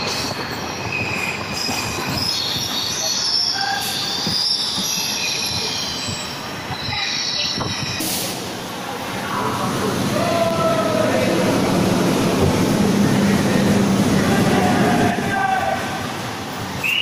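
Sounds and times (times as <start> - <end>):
train wheels squealing: 0.0 - 8.3
train running gear rumbling: 0.0 - 16.8.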